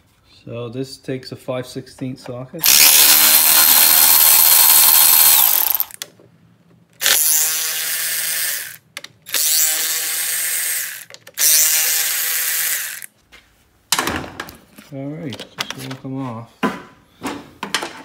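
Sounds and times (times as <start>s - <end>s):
cordless ratchet running: 2.6s - 6.0s, 7.0s - 13.1s.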